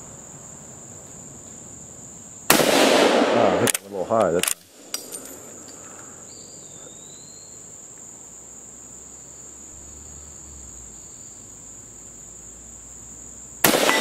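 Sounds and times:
insects droning: 0.0s - 14.0s
rifle shot: 2.5s - 4.6s, 13.6s - 14.0s.

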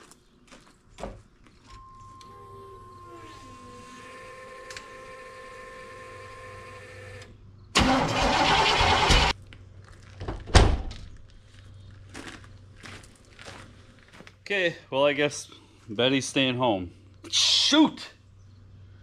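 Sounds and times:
engine starter cranking: 7.0s - 9.4s.

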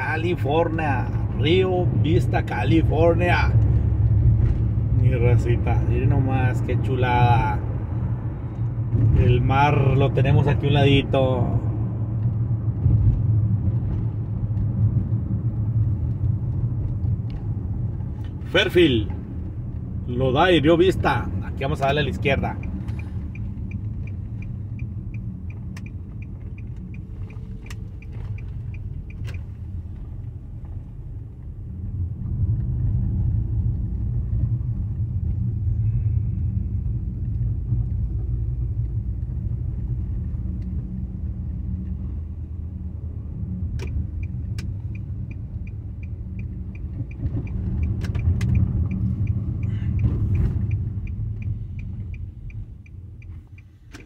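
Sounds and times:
car engine and road rumble: 0.0s - 54.0s
turn signal ticking: 0.0s - 54.0s
scattered clicks: 43.7s - 54.0s.

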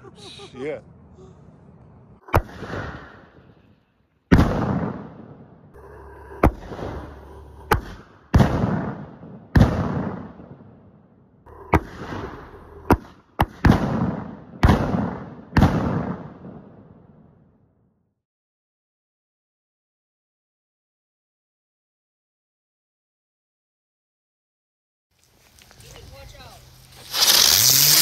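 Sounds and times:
fireworks bangs with echo: 2.2s - 3.6s, 4.3s - 5.7s, 6.4s - 10.8s, 11.5s - 17.0s.

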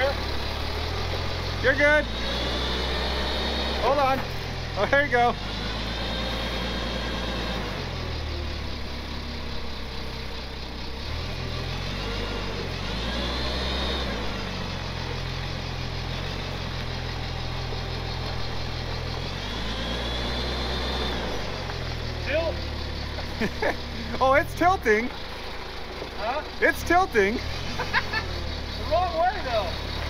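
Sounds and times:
forklift engine revving: 0.0s - 30.0s.

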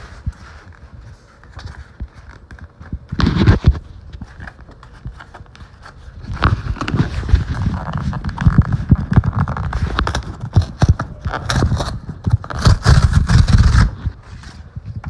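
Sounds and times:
handling knocks and rubbing: 0.0s - 15.0s
cardboard box tearing: 9.4s - 14.1s.

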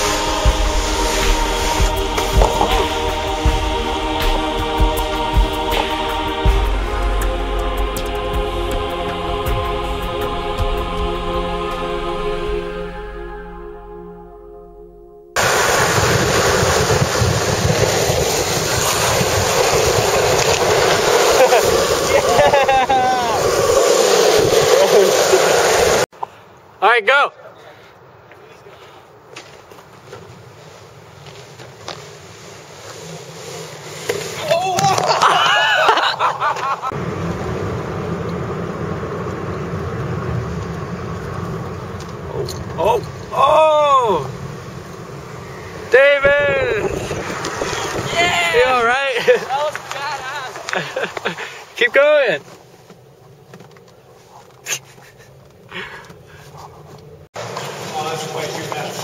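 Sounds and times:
music: 0.0s - 15.4s
high wavering squeals: 0.0s - 16.5s
wind rushing on microphone: 15.4s - 26.0s, 37.0s - 51.4s
longboard wheels rolling on asphalt: 15.4s - 26.1s, 28.3s - 59.0s.

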